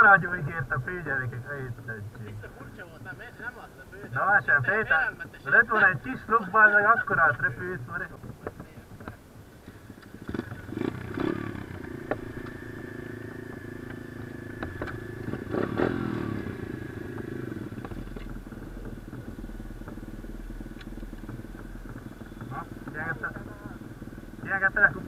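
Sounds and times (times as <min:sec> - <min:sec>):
motorbike engine revving: 0:07.6 - 0:25.0.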